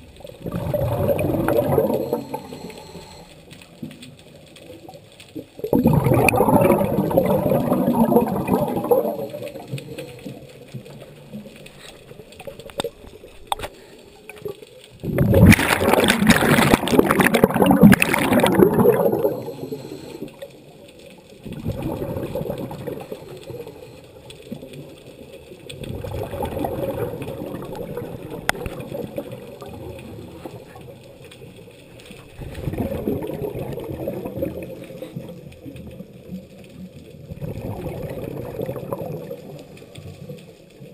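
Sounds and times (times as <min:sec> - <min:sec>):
air bubbles gurgling: 0:00.0 - 0:13.7, 0:14.3 - 0:40.9
diver breathing through regulator: 0:01.8 - 0:03.4, 0:17.4 - 0:20.5.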